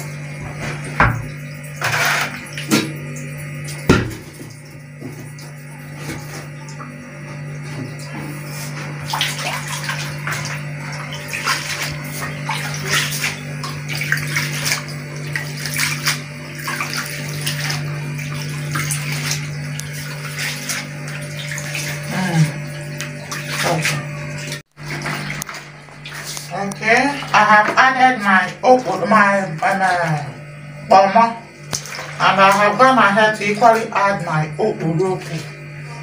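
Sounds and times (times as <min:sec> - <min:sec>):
water splashing in basin: 0:00.0 - 0:35.6.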